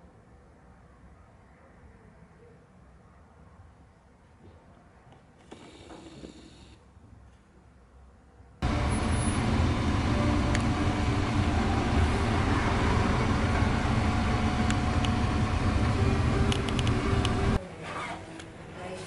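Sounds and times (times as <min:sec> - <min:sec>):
motor vehicle rumble and hiss: 0:08.6 - 0:17.6.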